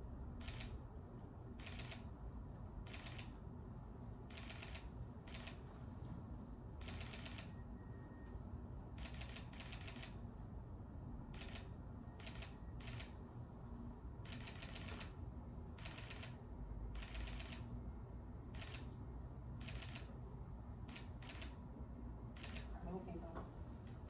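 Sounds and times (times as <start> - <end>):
camera shutter bursts: 0.4 - 0.8, 1.6 - 2.0, 4.3 - 5.6, 6.8 - 7.5, 9.0 - 10.2, 11.4 - 13.2, 14.3 - 15.1, 15.8 - 16.4, 18.6 - 18.9, 19.6 - 20.1, 20.9 - 21.6, 22.4 - 22.7.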